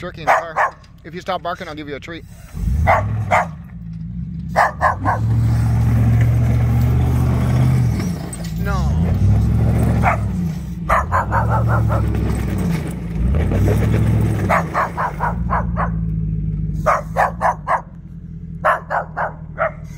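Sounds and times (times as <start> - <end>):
car engine running: 0.0 - 19.9
dog barking: 0.2 - 0.8, 2.8 - 3.7, 4.5 - 5.4, 10.0 - 12.2, 14.4 - 16.1, 16.8 - 18.0, 18.6 - 19.9.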